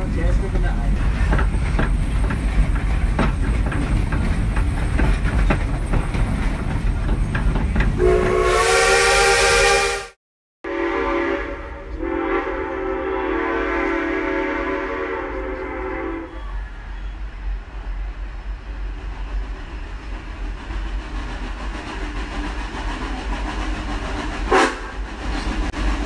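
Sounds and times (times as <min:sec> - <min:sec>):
steam locomotive rumble and clanking: 0:00.0 - 0:09.1, 0:10.9 - 0:26.0
steam whistle chord: 0:08.0 - 0:16.3.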